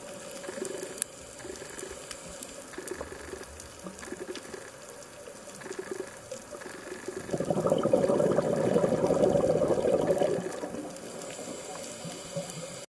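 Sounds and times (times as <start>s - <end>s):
faint underwater clicks: 0.0s - 12.9s
underwater breath bubbles: 7.0s - 12.8s.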